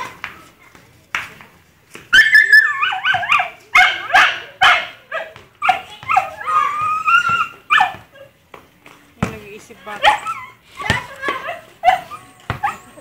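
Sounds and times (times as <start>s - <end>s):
small dog yipping and barking: 2.1s - 8.3s, 9.9s - 13.0s
dog whining: 5.6s - 8.3s, 10.0s - 13.0s.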